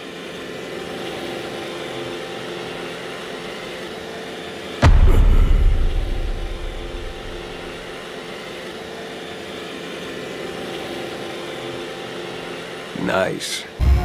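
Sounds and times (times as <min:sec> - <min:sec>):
deep low rumble: 0:04.8 - 0:07.8.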